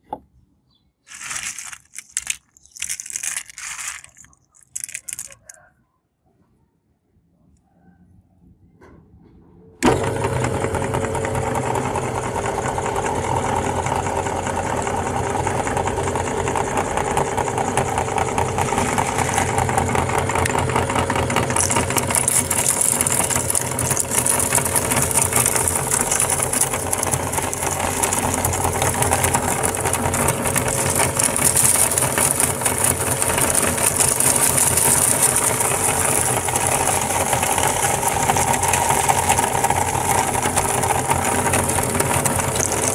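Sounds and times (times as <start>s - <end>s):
crisp crunching of pellets: 1.0s - 5.6s, 17.8s - 42.9s
meat grinder running: 1.1s - 5.3s, 9.8s - 42.9s.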